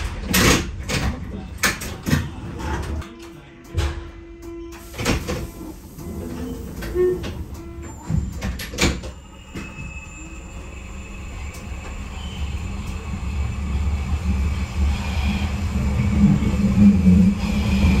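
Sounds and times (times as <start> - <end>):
subway train rumbling: 0.0 - 18.0.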